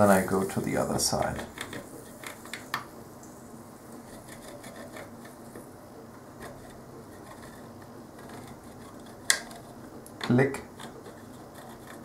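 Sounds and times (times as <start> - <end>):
soldering iron hiss: 0.0 - 4.0.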